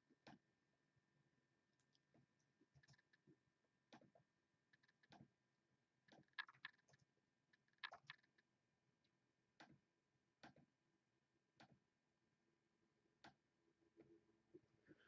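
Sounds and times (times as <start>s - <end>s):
mouse and keyboard clicks: 6.1s - 7.0s, 7.6s - 8.4s.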